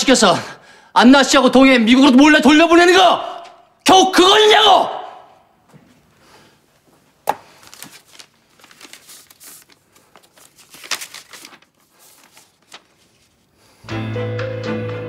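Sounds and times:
paper rustling and crinkling: 7.3s - 13.6s.

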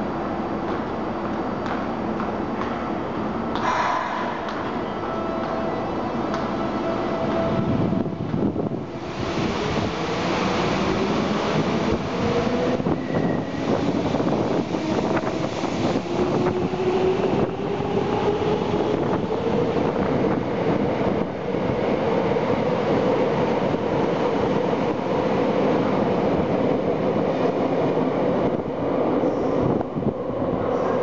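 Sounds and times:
wheels rumbling on rail: 3.6s - 28.6s.

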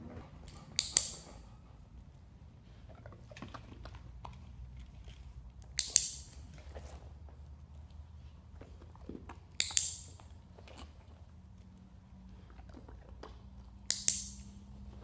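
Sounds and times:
faint clicks and handling sounds: 2.8s - 15.0s
training clicker double click: 5.8s - 6.3s, 9.6s - 10.1s, 13.9s - 14.5s.

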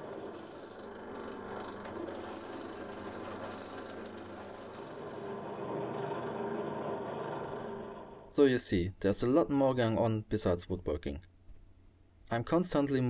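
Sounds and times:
drill press drilling into wood: 0.0s - 8.2s.

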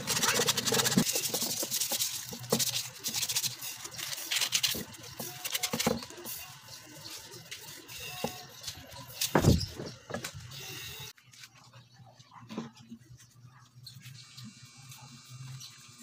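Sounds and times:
sandpaper rubbing wood: 0.0s - 8.7s.

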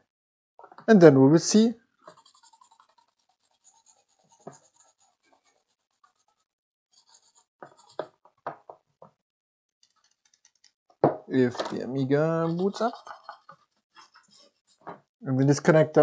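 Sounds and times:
toothbrush scrubbing circuit board: 2.0s - 8.0s, 9.8s - 10.8s, 12.4s - 14.7s.

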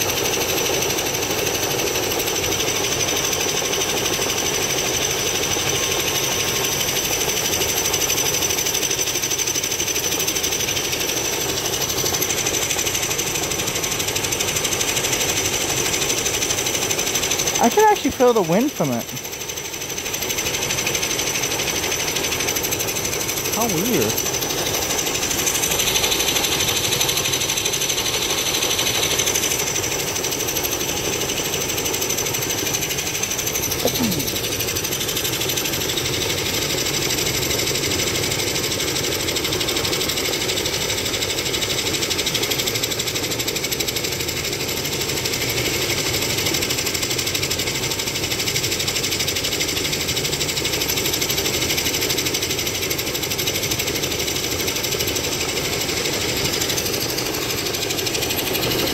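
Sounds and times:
helicopter rotor chopping: 8.2s - 36.5s, 52.1s - 58.9s.

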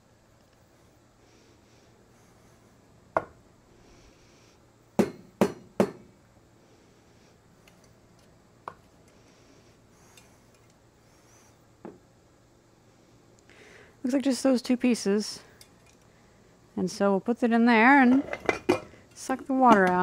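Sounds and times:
tools knocking on workbench: 5.0s - 6.0s.

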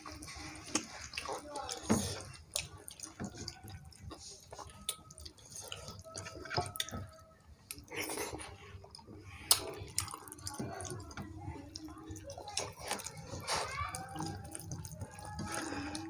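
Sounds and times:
chewing: 0.0s - 16.0s
food squelching by hand: 0.0s - 16.0s
lip smacks: 2.0s - 10.5s
sharp wet clicks: 8.9s - 16.0s.

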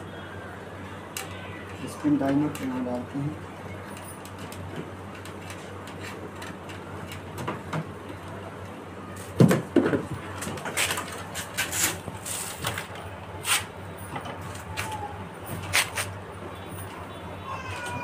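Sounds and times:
clicks and rustles of wires: 3.8s - 17.1s.

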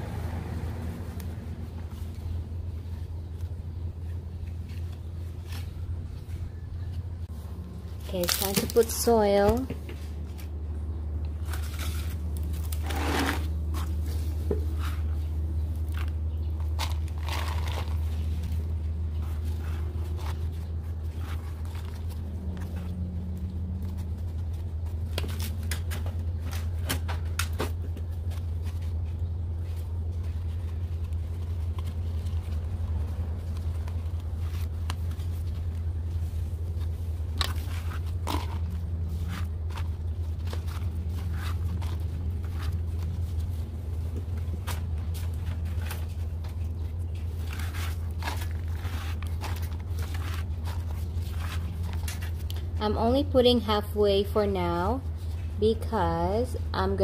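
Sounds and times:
steady low hum: 0.0s - 57.0s
soil crunching and scraping: 11.4s - 26.8s, 28.2s - 53.0s.

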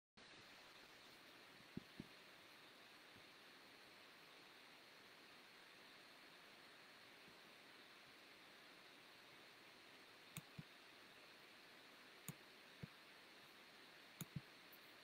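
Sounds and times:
computer mouse clicks: 10.3s - 10.7s, 14.2s - 14.9s.

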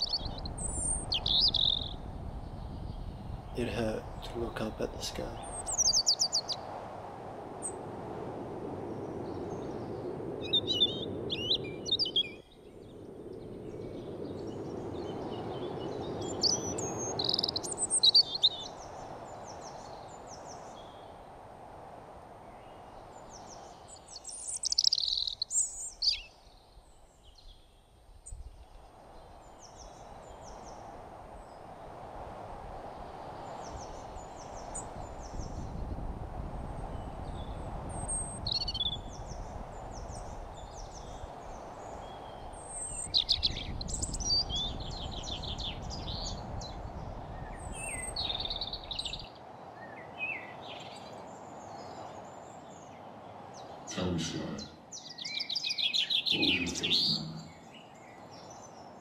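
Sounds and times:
birds chirping: 0.0s - 6.6s, 8.9s - 21.2s, 22.5s - 27.6s, 36.7s - 59.0s.

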